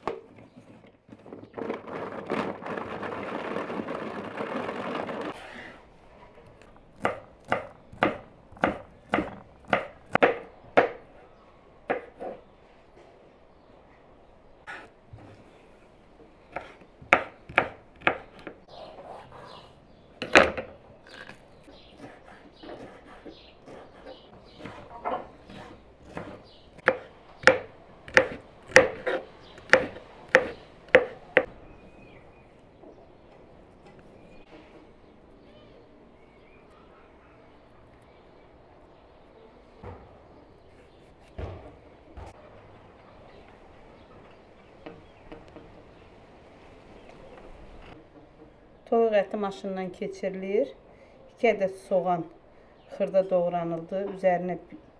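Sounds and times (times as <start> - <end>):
knife chopping on wooden board: 7.0 - 11.0, 11.9 - 12.4, 16.5 - 18.6, 21.9 - 31.5.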